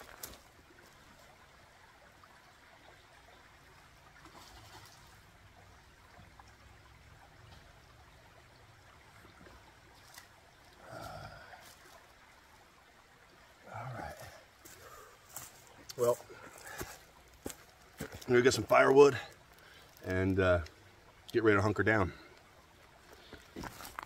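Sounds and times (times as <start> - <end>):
creek running over stones: 0.0 - 24.0.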